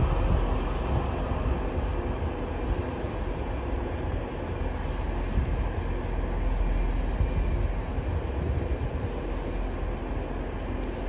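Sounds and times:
faint hum: 0.0 - 11.0
train running: 0.0 - 11.0.

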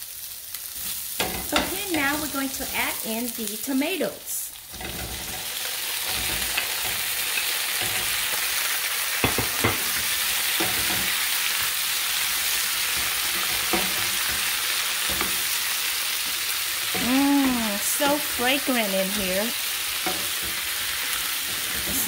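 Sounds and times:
vegetables sizzling in hot oil: 0.0 - 22.0
wooden spatula scraping pan: 20.0 - 22.0.

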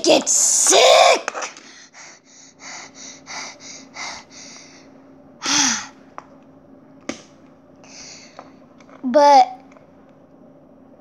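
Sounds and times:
child breathy puffs: 1.7 - 6.0
child gasping: 5.4 - 6.0.

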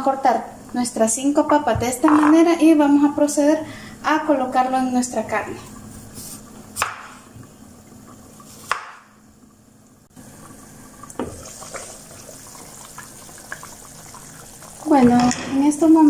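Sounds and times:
stew simmering in a pan: 4.7 - 16.0.

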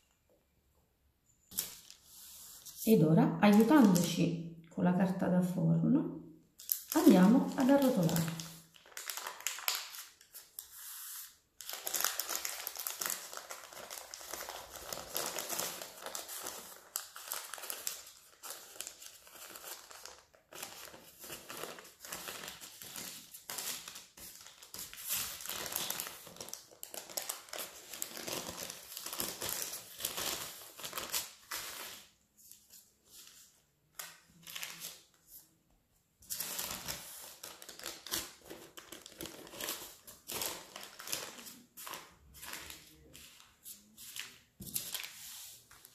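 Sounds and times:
baking paper crinkling: 3.5 - 4.2, 6.6 - 35.5, 36.2 - 45.9.

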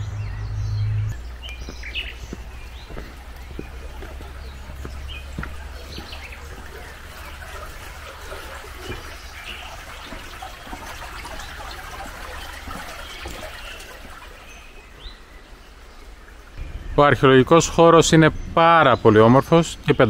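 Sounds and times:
shallow water trickling: 1.1 - 16.6.

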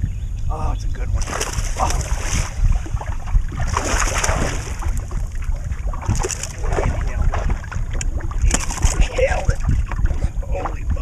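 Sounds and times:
wind buffeting microphone: 0.0 - 11.0
water splashing: 1.1 - 11.0.

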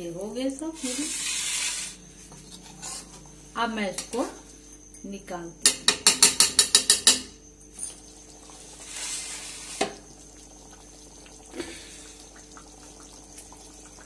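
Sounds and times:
gravy simmering and bubbling: 8.0 - 14.0.

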